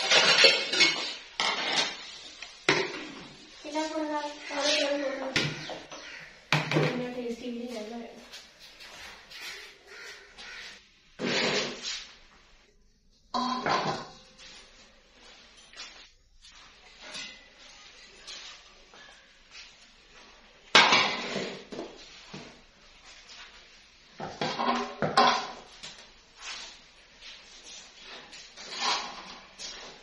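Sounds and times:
cooking pots clanking: 0.0s - 2.1s, 13.3s - 14.3s.

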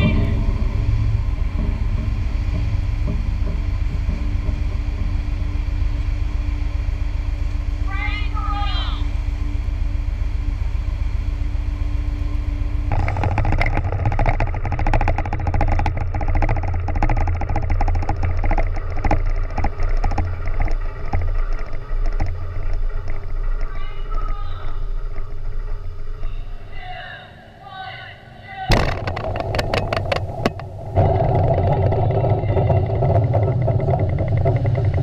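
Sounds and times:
low rumble: 0.0s - 35.0s
wind buffeting a microphone: 28.7s - 35.0s.

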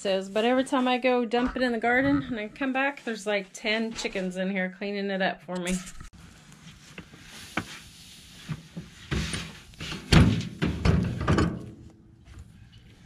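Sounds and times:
wheelbarrow dumping hay: 6.8s - 11.2s.

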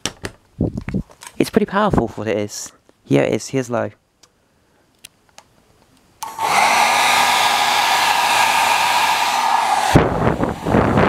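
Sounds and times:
hairdryer switch clicks: 6.2s - 9.9s
hairdryer blowing whine: 6.2s - 11.0s.

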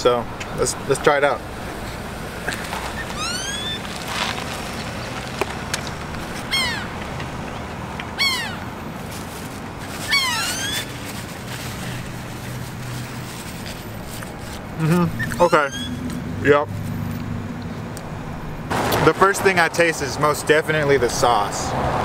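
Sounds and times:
whistle-like animal cries: 3.0s - 3.8s, 8.2s - 8.6s, 10.1s - 10.9s, 15.2s - 16.0s.

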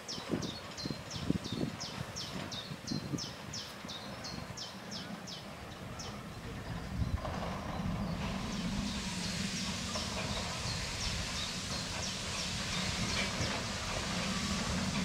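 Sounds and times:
train wagons rumbling on rails: 0.1s - 15.0s
steam hissing: 6.4s - 15.0s.

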